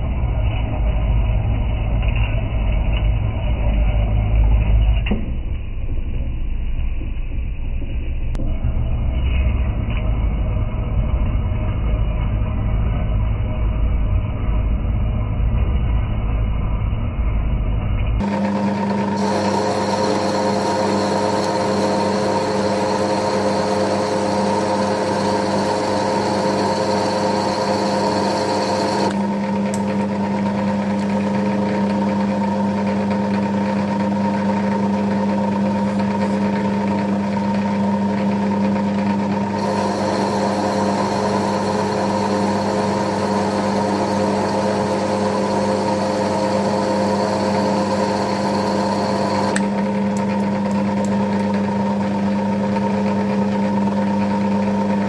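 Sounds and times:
high whine: 0:00.0 - 0:32.6
lathe motor hum: 0:18.2 - 0:55.0.

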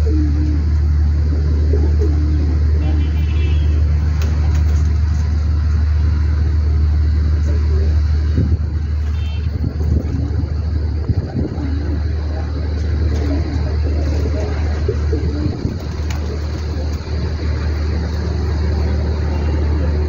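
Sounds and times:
pigeons cooing: 0:00.0 - 0:05.4, 0:09.4 - 0:20.0
low machine hum: 0:00.0 - 0:20.0.

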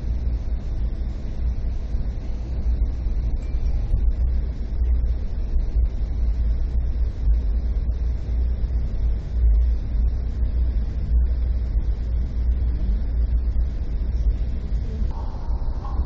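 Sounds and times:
train rumble from inside: 0:11.3 - 0:16.0.

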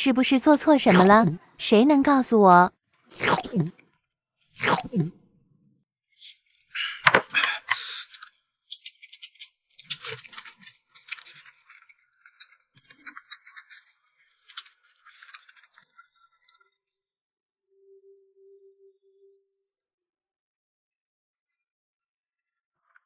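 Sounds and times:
slurping and chewing fruit: 0:03.0 - 0:05.2, 0:06.6 - 0:16.8.

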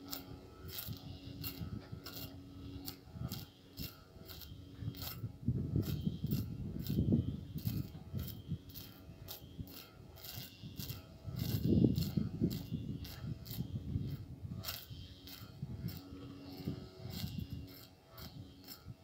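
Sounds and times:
electric motor hum: 0:00.0 - 0:19.0.

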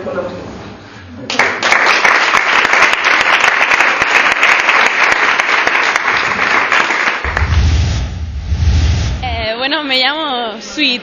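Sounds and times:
audience applauding: 0:01.3 - 0:07.5.

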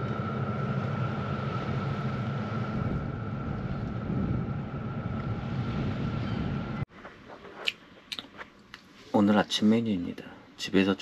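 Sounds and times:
high machine whine: 0:00.0 - 0:06.9
machine hum: 0:00.0 - 0:06.9.

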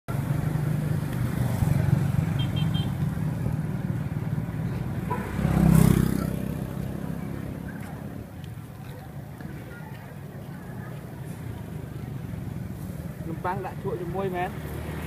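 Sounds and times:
traffic engines running: 0:00.1 - 0:15.0.

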